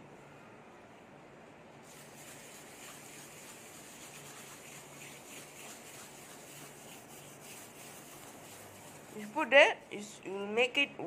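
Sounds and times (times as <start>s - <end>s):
tissue rubbing on brass: 1.8s - 9.5s.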